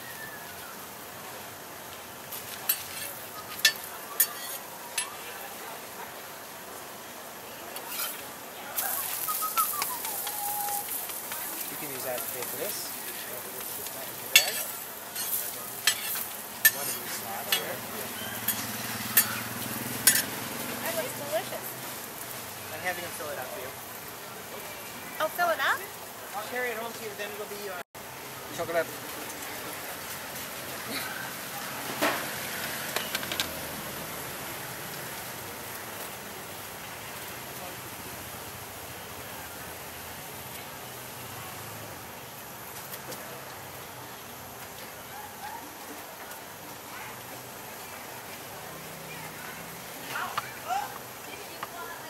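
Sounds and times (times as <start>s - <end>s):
pancake sizzling on griddle: 0.0s - 6.5s, 7.4s - 52.0s
steady hiss: 0.0s - 52.0s
metal spatula clicking on griddle: 9.8s - 12.6s, 13.6s - 17.8s, 20.0s - 20.3s.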